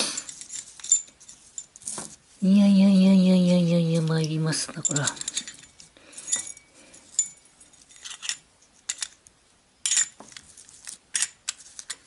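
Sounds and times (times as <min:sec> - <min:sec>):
metal dishes clinking: 0:04.8 - 0:09.2.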